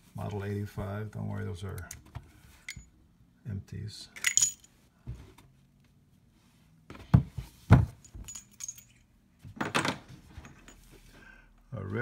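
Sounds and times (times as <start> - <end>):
revolver set on a tabletop: 1.8 - 3.0, 4.1 - 4.9, 7.9 - 11.2
brass cases clinking: 4.2 - 4.7, 8.0 - 9.1.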